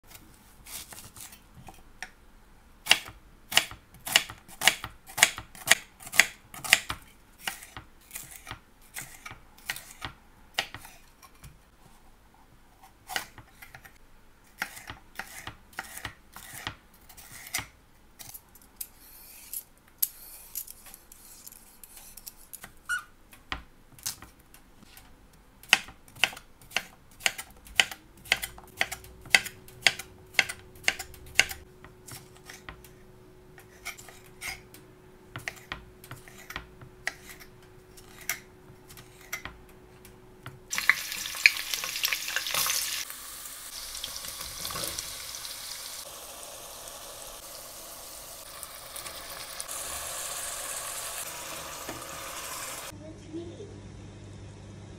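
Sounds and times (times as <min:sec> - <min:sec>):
knife chopping on wooden board: 0:25.7 - 0:32.8.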